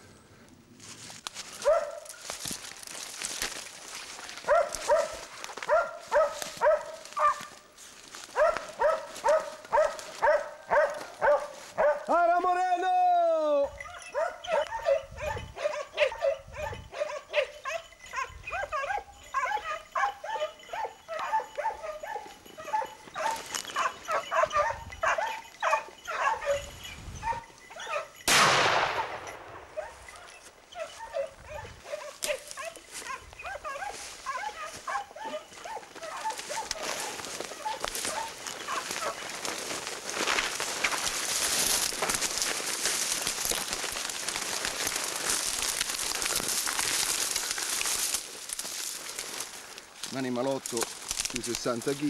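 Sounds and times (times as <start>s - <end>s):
hounds baying and yelping: 1.4s - 12.1s, 13.6s - 28.3s, 29.1s - 49.8s
shotgun shot: 28.3s - 29.8s.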